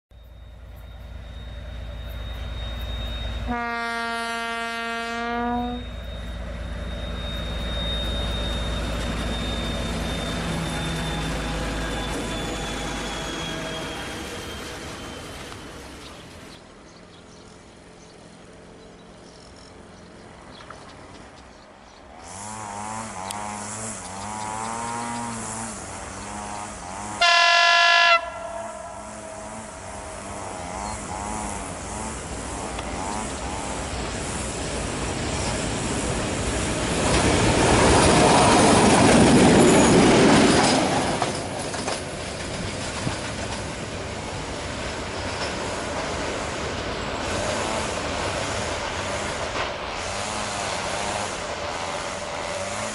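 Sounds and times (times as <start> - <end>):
diesel locomotive engine rumbling: 0.1 - 52.9
locomotive horn blast: 3.4 - 6.0, 22.3 - 32.3.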